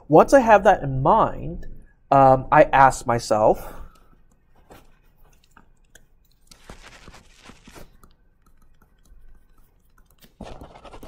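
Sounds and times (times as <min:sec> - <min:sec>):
stylus tapping and scratching: 0:04.1 - 0:11.0.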